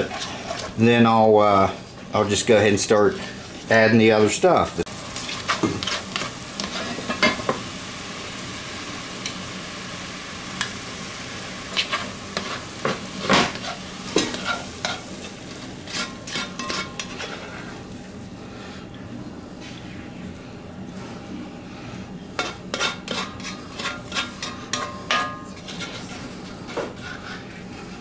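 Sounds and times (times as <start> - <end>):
onions sizzling in pot: 0.0 - 1.8, 2.8 - 18.4, 22.4 - 26.8
spoon scraping and knocking pot: 15.9 - 17.4, 22.4 - 26.1.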